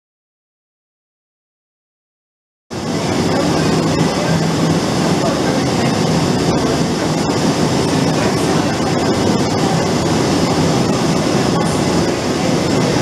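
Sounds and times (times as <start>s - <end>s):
constant low hum: 2.7s - 13.0s
milling machinery running: 2.7s - 13.0s.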